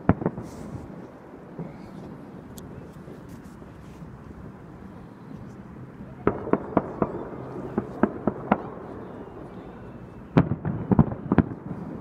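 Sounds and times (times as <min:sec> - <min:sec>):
fireworks bangs: 0:00.0 - 0:02.9, 0:06.1 - 0:12.0.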